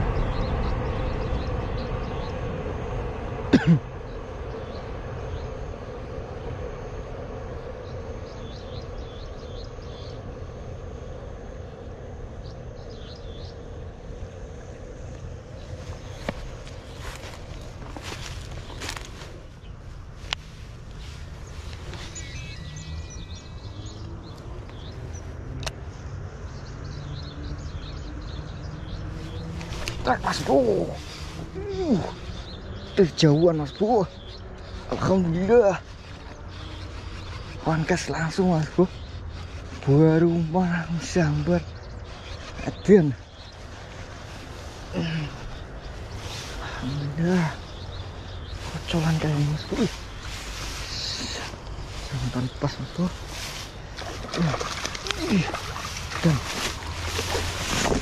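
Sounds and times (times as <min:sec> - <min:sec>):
passing train rumble: 0:00.0 - 0:26.2
small birds chirping: 0:00.0 - 0:58.0.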